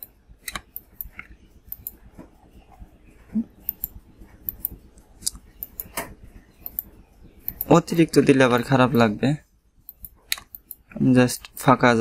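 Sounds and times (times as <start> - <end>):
computer mouse clicking: 0.0 - 2.1, 3.5 - 7.8, 9.8 - 11.6.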